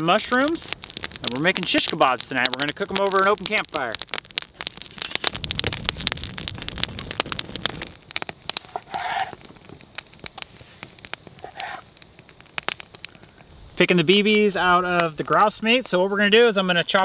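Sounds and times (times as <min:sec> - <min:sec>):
campfire crackling and popping: 0:00.0 - 0:17.0.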